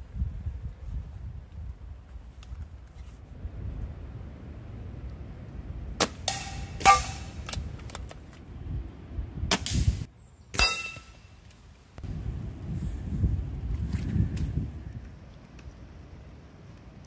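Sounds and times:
metal target ringing: 6.3 - 7.4, 10.6 - 11.3.

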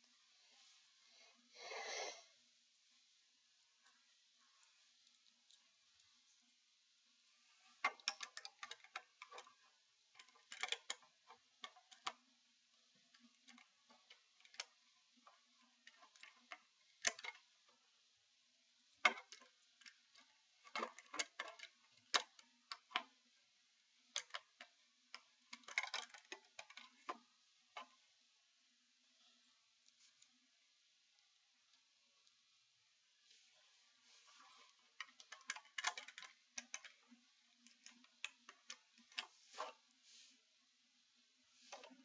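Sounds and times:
plastic bricks clicking: 35.0 - 37.0.

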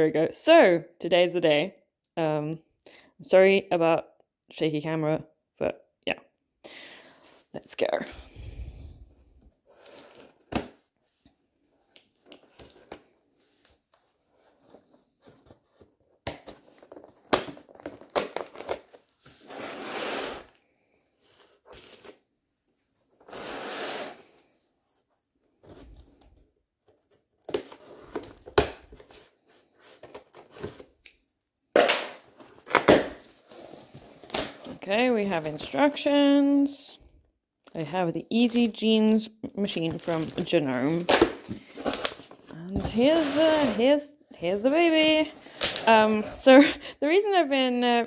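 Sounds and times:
cardboard tearing: 15.3 - 20.6, 23.2 - 24.4, 39.9 - 44.0.

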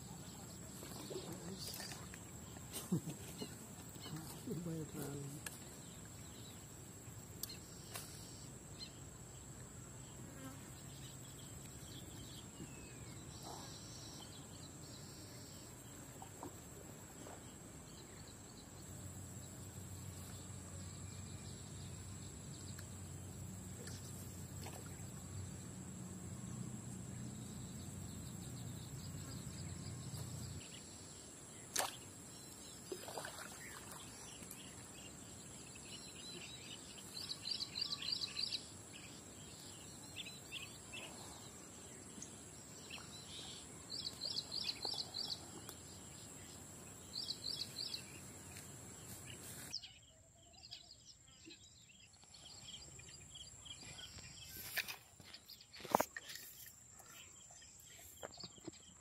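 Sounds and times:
insects droning: 0.0 - 59.0
faint chirps: 11.7 - 18.8.

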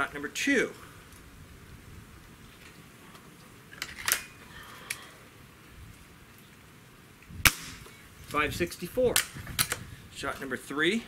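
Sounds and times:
air rifle loading clicks: 3.7 - 5.1, 9.1 - 9.9
air rifle shot: 7.4 - 7.8.

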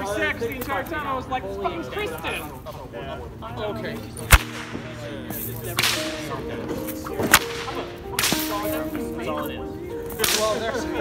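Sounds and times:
whip crack: 4.2 - 6.4, 7.2 - 8.8, 10.1 - 10.7
whip swishes: 4.3 - 4.9, 5.5 - 6.3, 7.2 - 8.7, 10.2 - 10.6.

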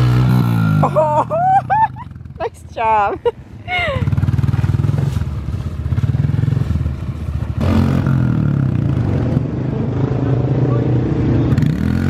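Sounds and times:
dirt bike engine revving: 0.0 - 2.5, 3.8 - 10.0, 11.4 - 12.0.

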